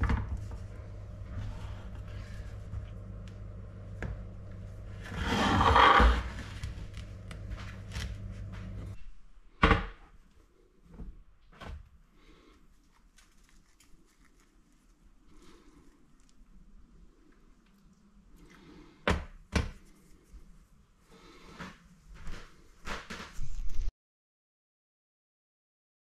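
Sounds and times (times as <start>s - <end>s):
steady hum: 0.0s - 9.0s
baking tray scraping on table: 4.9s - 6.9s.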